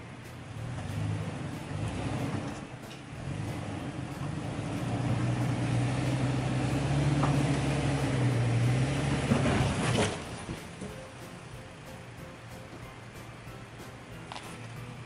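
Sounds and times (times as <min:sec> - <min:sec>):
engine running at low revs: 0:00.0 - 0:10.9.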